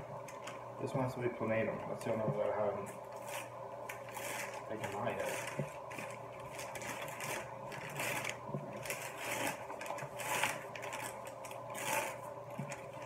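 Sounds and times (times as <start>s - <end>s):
steady low hum: 0.0s - 13.0s
paper wrapping crinkling: 3.1s - 13.0s.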